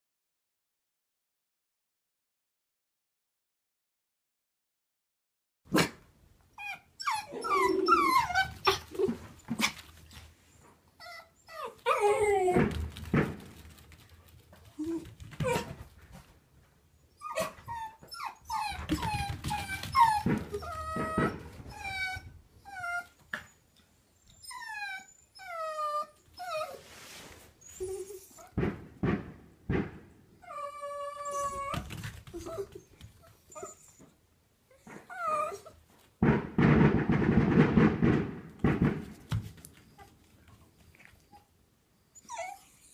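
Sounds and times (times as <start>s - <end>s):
dogs whining and yelping: 6.6s - 12.9s, 14.7s - 15.9s, 17.1s - 26.9s, 27.6s - 28.7s, 30.4s - 35.9s, 40.9s - 42.9s.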